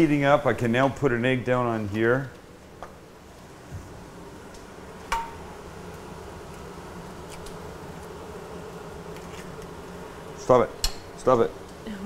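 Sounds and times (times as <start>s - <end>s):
egg sizzling on a griddle: 4.5s - 12.0s.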